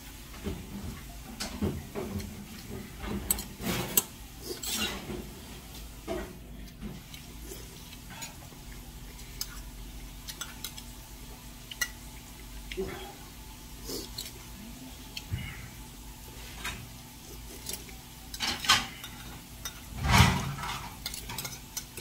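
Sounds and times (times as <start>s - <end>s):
metal spoon clinking on bowls: 17.6s - 19.9s, 21.0s - 22.0s.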